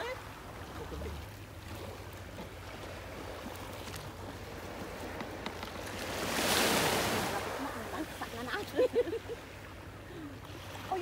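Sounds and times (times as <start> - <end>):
sea washing against rocks: 4.5 - 8.6.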